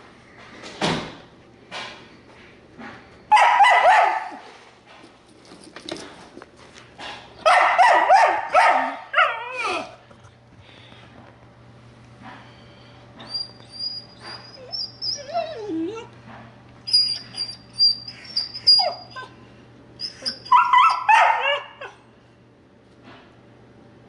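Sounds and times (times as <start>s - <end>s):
dog yelping and barking: 3.3s - 4.4s, 7.5s - 9.9s, 13.3s - 16.1s, 16.9s - 19.4s, 20.0s - 22.0s
dog whining: 9.2s - 10.0s, 13.2s - 16.2s, 16.9s - 19.4s, 20.0s - 22.1s.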